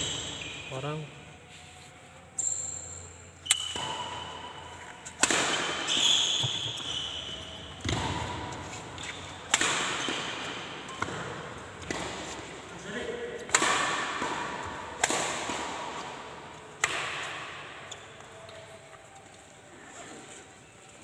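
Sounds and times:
badminton racket hitting shuttlecock: 0:03.4 - 0:18.1.

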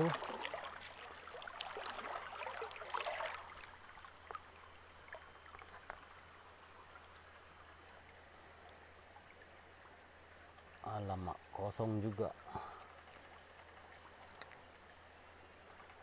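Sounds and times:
splashing and rustling of fishing line: 0:00.0 - 0:06.4
stream water running: 0:00.0 - 0:16.0
small ticks: 0:13.1 - 0:14.8.

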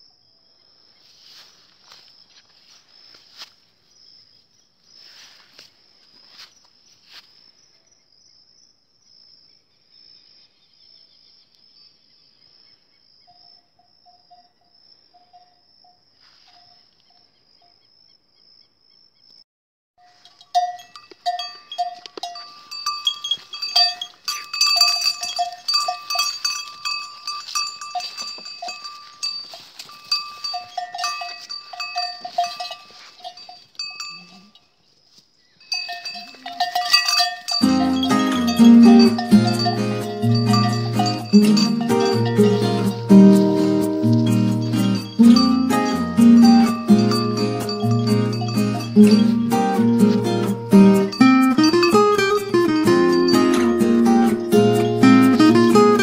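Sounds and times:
goat bells clanking: 0:20.0 - 0:34.8, 0:35.6 - 0:56.0.

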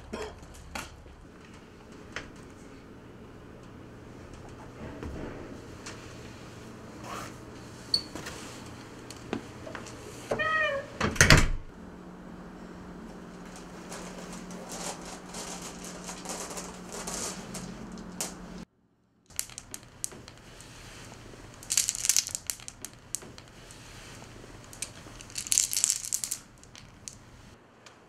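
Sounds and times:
low steady hum: 0:00.0 - 0:27.8
marbles clicking on hard floor: 0:19.3 - 0:23.9, 0:24.6 - 0:27.2.

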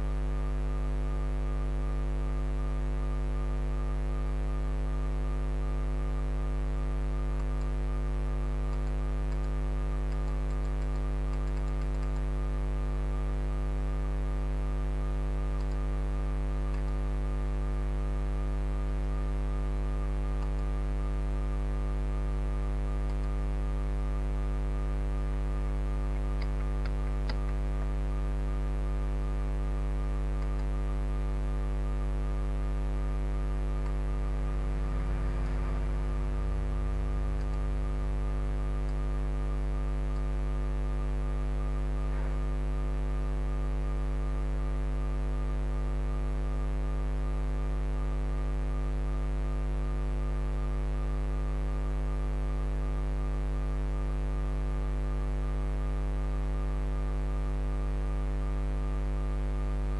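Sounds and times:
electrical mains hum: 0:00.0 - 0:59.9
faint clicks: 0:08.7 - 0:12.2.

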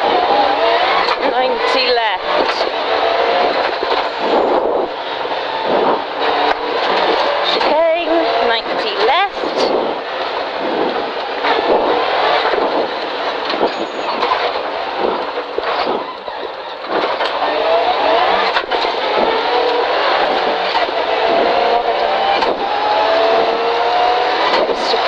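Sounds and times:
rally car engine accelerating: 0:00.0 - 0:25.0
road and gravel noise: 0:00.0 - 0:25.0.

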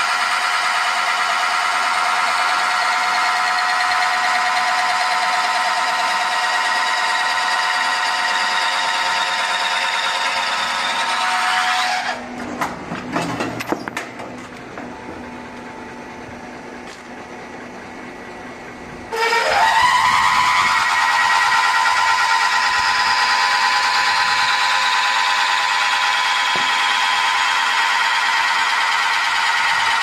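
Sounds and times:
high cutting screech: 0:00.0 - 0:12.3, 0:19.1 - 0:30.0
low motor hum: 0:12.2 - 0:30.0
machine clunks and clicks: 0:12.4 - 0:15.2.

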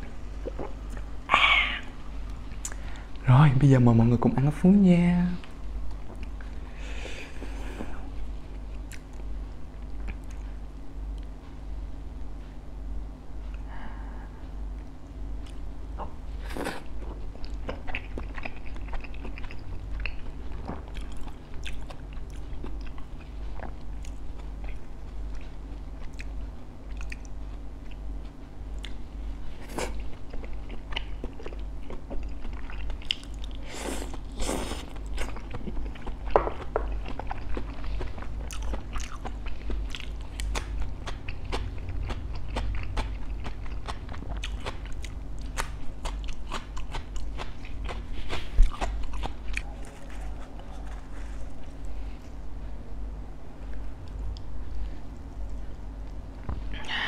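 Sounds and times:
crunching bites and chewing: 0:29.6 - 0:51.9.

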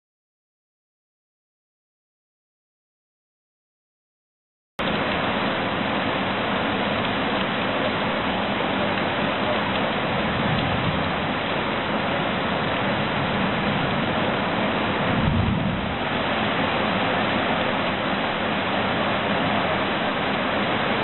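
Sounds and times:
heavy rain on leaves: 0:04.8 - 0:21.0.

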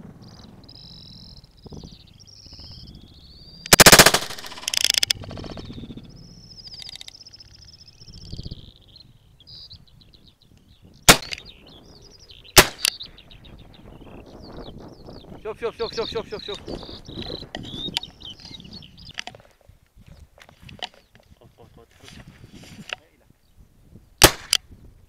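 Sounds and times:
small birds warbling: 0:00.0 - 0:24.9
sharp gunshot crack: 0:03.7 - 0:05.0, 0:11.1 - 0:11.5, 0:12.6 - 0:13.0, 0:24.2 - 0:24.6
loud rattling bursts: 0:03.7 - 0:05.8.

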